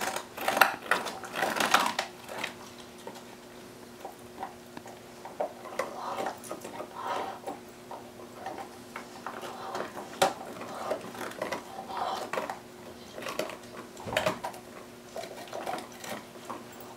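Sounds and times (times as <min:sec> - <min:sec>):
dog gnawing on a bone: 0:00.0 - 0:16.9.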